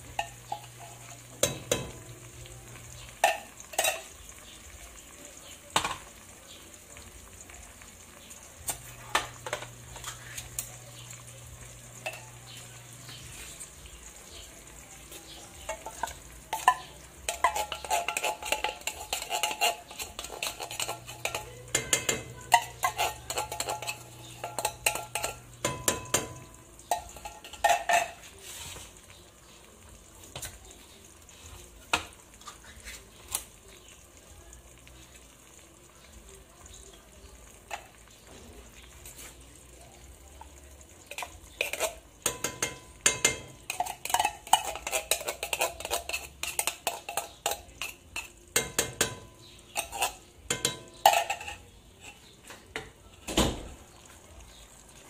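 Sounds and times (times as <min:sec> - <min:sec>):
meat sizzling in hot oil: 0:00.0 - 0:55.0
fork scraping inside tin can: 0:17.3 - 0:21.6, 0:22.5 - 0:25.4, 0:43.7 - 0:48.3.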